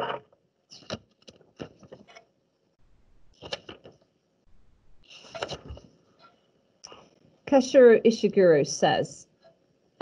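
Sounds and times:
book pages rustling: 0:00.8 - 0:02.2, 0:03.3 - 0:04.0.

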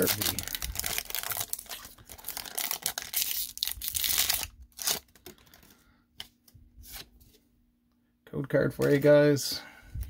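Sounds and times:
foil wrapper tearing and crinkling: 0:00.0 - 0:05.6.

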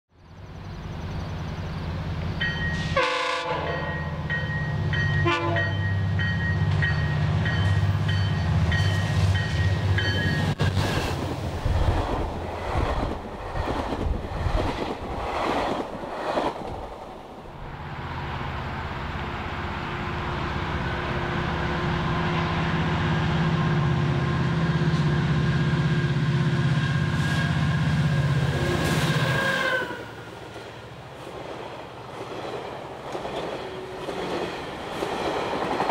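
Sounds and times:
locomotive engine drone: 0:00.1 - 0:14.2, 0:17.4 - 0:32.1
train coaches clattering by: 0:00.6 - 0:35.9
train horn tones: 0:02.7 - 0:04.3, 0:05.1 - 0:06.0, 0:23.7 - 0:30.4.

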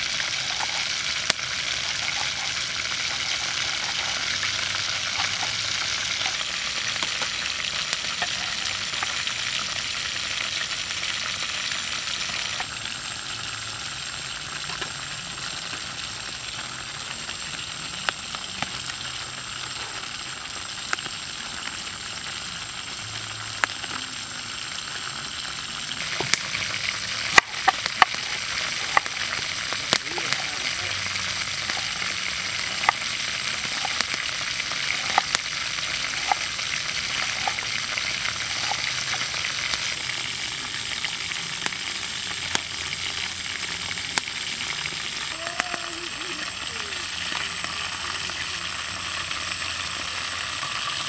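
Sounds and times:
steady hiss: 0:00.0 - 0:51.0.

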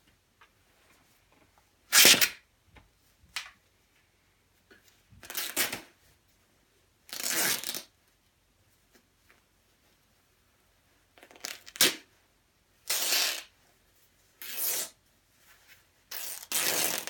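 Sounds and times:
fabric tearing: 0:01.9 - 0:02.4, 0:07.1 - 0:07.9, 0:14.4 - 0:15.0, 0:16.1 - 0:17.0.

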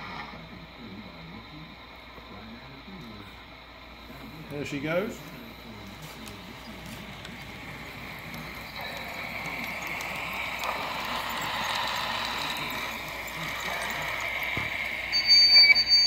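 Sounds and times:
model train hissing and ticking: 0:00.0 - 0:16.0.

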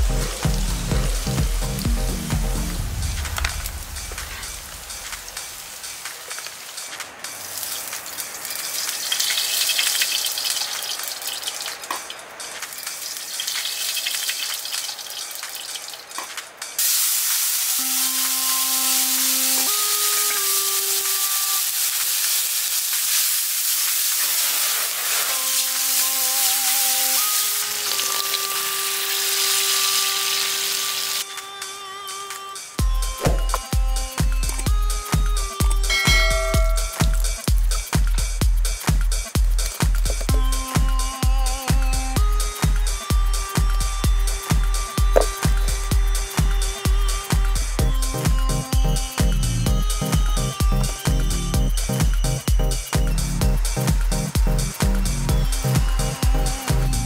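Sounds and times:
loud sizzle of tomatoes in oil: 0:00.0 - 0:31.2, 0:32.8 - 0:57.0
meat frying in oil: 0:00.0 - 0:31.2.

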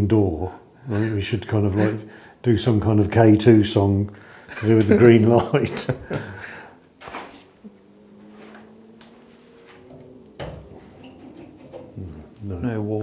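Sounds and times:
faint steady tone: 0:07.6 - 0:13.0.

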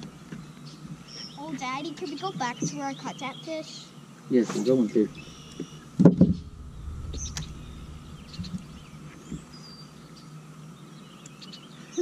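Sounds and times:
faint hum and low rumble: 0:04.8 - 0:10.2.

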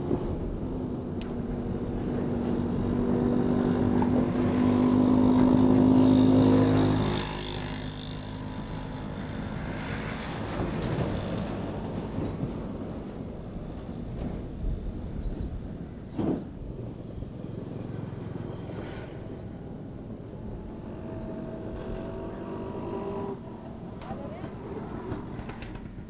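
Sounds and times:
engine running: 0:00.0 - 0:14.4, 0:16.6 - 0:26.0
faint rumble: 0:08.1 - 0:26.0.

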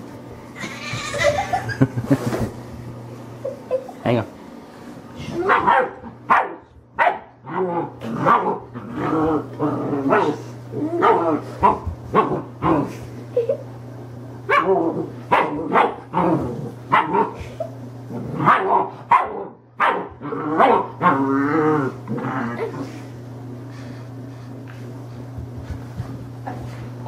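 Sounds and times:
puppy barking: 0:05.4 - 0:07.3, 0:14.5 - 0:16.0, 0:16.9 - 0:17.4, 0:18.4 - 0:20.9.

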